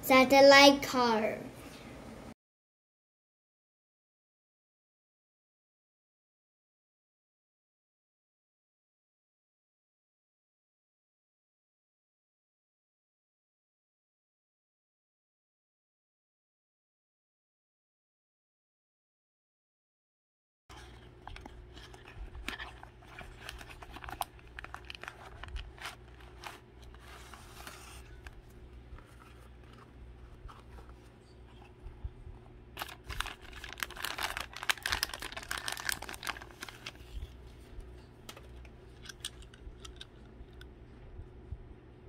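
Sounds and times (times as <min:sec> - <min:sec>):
plastic bag crinkling: 0:20.7 - 0:31.7, 0:32.8 - 0:37.6
low steady hum: 0:20.7 - 0:42.0.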